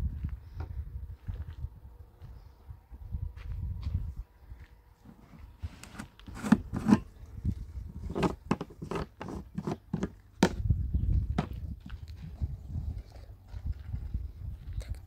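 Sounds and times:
plastic jerrycan scraping and knocking: 5.1 - 7.1, 7.9 - 10.6.

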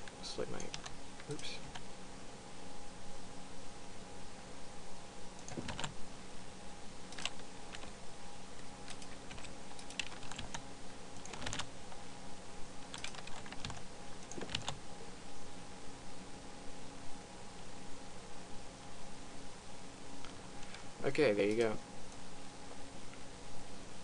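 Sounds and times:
faint steady hum: 0.0 - 24.0
keyboard and mouse clicks: 5.4 - 6.0, 7.1 - 7.9, 8.8 - 10.6, 11.2 - 11.7, 12.9 - 14.8.

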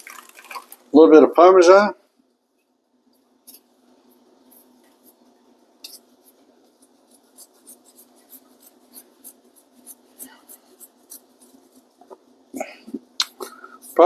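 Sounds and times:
low steady hum: 0.0 - 14.0
small ticks and scratches: 2.5 - 12.3.

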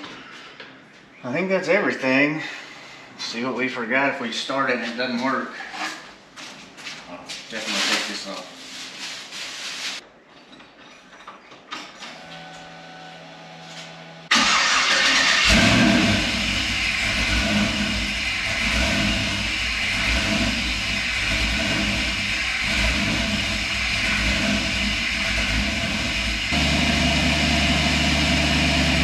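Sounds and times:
car engine starting and idling: 12.8 - 29.0.

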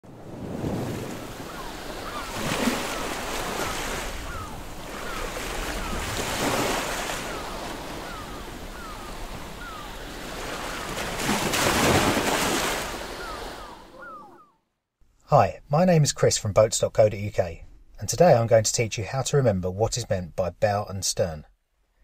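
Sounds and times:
waves washing in: 0.0 - 14.4
gull cries: 1.1 - 11.1, 12.9 - 14.6.

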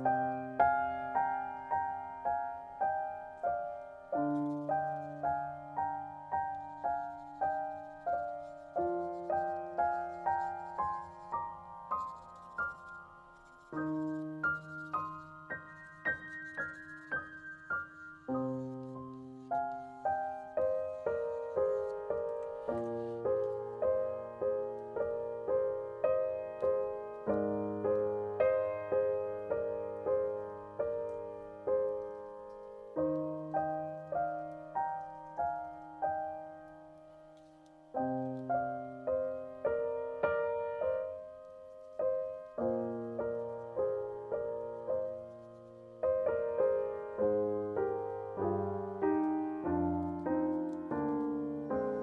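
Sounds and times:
gentle piano music: 0.0 - 52.0.

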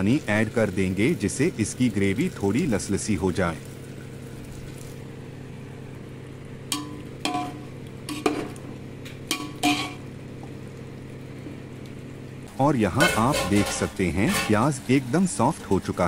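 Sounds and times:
steady low hum: 0.0 - 16.0
spatula scraping metal pot: 9.6 - 10.0, 13.0 - 14.8.

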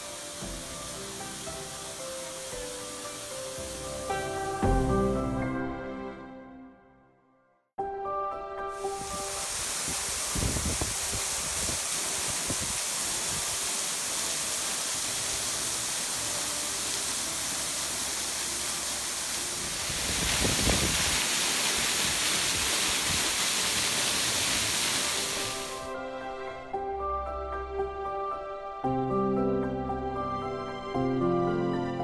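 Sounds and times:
stream running over pebbles: 8.8 - 25.9
waterfall splashing on rock: 8.8 - 25.9.

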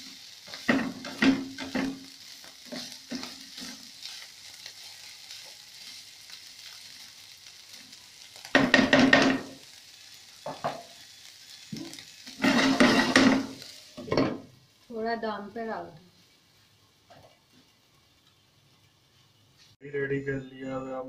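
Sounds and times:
food sizzling in frying pan: 0.0 - 19.8
spatula scraping pan: 0.5 - 4.3, 11.8 - 14.4.

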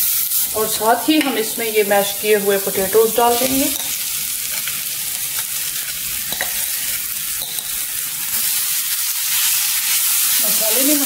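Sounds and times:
food sizzling in a pan: 0.0 - 11.0
spatula stirring and scraping: 2.7 - 11.0.

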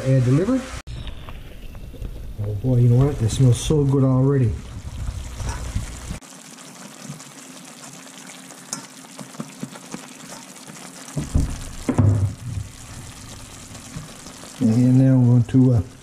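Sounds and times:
meat sizzling in oil: 3.7 - 16.0
louder knocks: 11.2 - 12.7.

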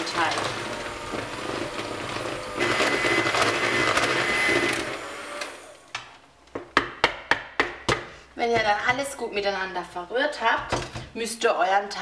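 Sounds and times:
electric hand mixer whirring: 0.0 - 5.9.

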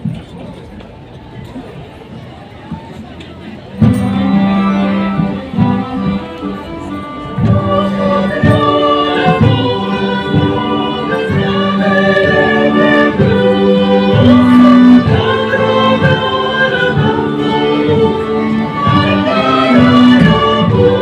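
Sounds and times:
folk band playing: 1.4 - 21.0
group of voices singing: 7.1 - 21.0.

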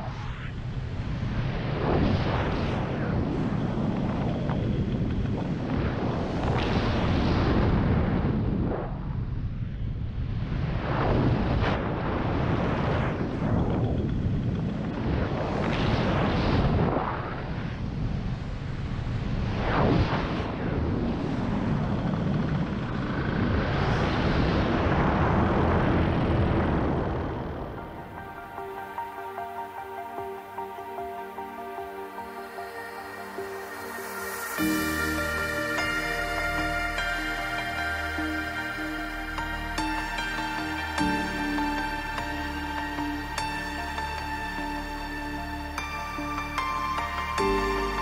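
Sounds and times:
wind rushing over microphone: 0.0 - 47.5.

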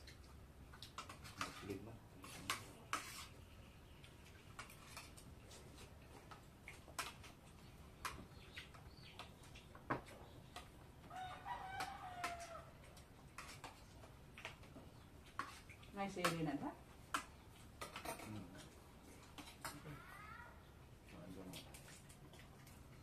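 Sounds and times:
rooster crowing: 11.1 - 12.8
cutlery clicking against plates: 17.1 - 18.7.

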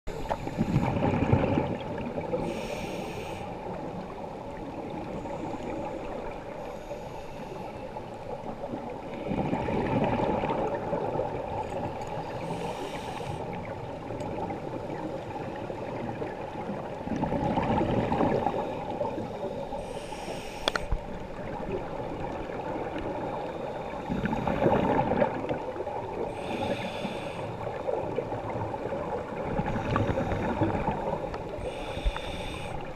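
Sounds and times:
regulator inhale hiss: 0.1 - 1.0, 2.3 - 3.8, 5.2 - 8.1, 11.9 - 13.7, 18.4 - 21.0, 26.2 - 27.8, 29.6 - 32.9
exhaled bubbles rushing underwater: 0.3 - 2.6, 8.3 - 19.8, 20.9 - 32.9.

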